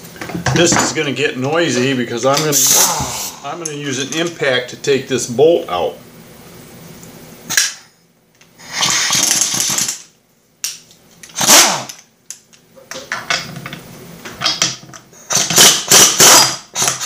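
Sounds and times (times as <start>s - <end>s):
air impact wrench bursts: 2.4s - 3.8s, 8.6s - 9.9s, 11.3s - 12.0s, 15.3s - 17.0s.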